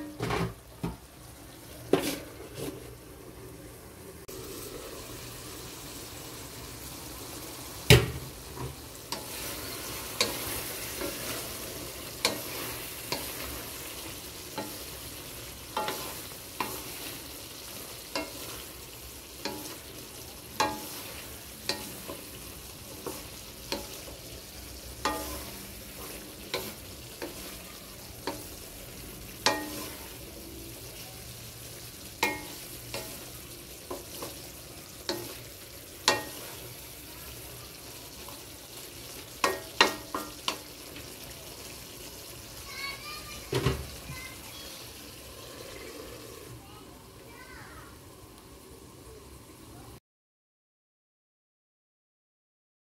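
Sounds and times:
low sizzle: 0.0s - 50.0s
wooden spatula scraping wok: 1.7s - 3.0s, 8.4s - 31.0s, 31.7s - 41.7s.

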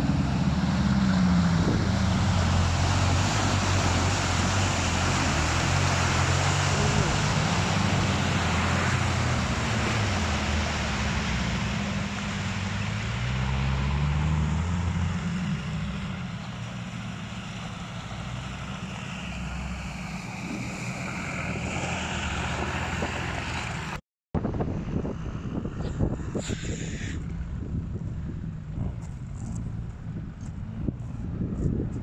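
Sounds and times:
diesel engine pulling under load: 0.0s - 24.0s
splashing mud and water: 0.8s - 23.9s.

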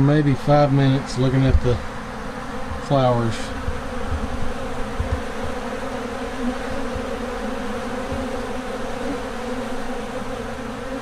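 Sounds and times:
honeybees buzzing: 0.0s - 11.0s.

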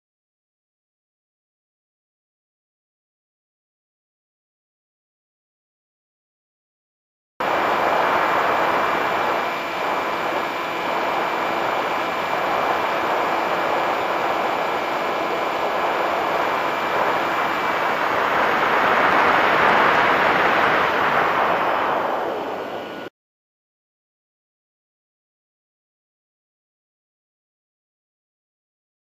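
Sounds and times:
electric motor noise: 7.4s - 23.1s
faint high whine: 7.4s - 23.1s
rush of airflow: 7.4s - 23.1s.

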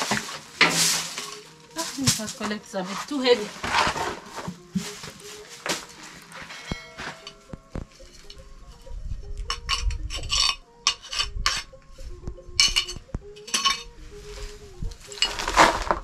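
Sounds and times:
shards scraping dirt floor: 0.0s - 7.5s, 12.6s - 14.0s, 15.0s - 16.0s.

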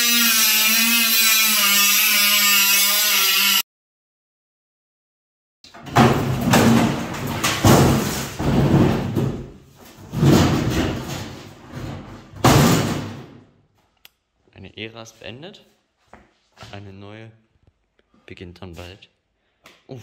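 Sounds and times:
metal banging and scraping: 5.7s - 13.5s.

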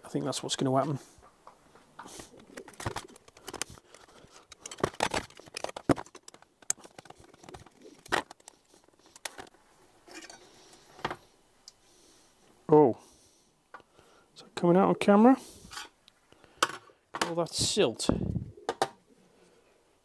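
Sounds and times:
screwdriver clicking and scraping: 2.0s - 9.5s.

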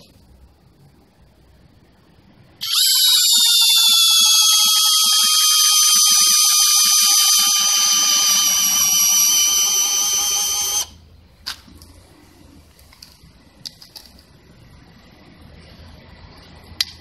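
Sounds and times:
drill motor whine: 2.6s - 11.0s.

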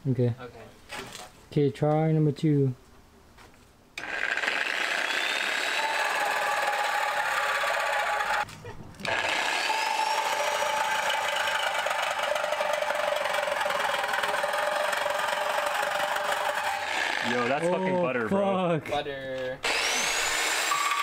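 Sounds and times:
reciprocating saw cutting metal: 4.0s - 8.4s, 9.0s - 18.0s, 19.6s - 21.0s.

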